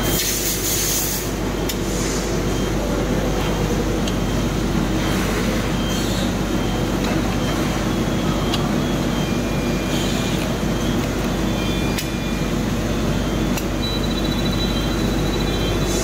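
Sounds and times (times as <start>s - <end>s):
testing machine humming: 1.3s - 16.0s
sharp mechanical clicks: 13.5s - 14.8s.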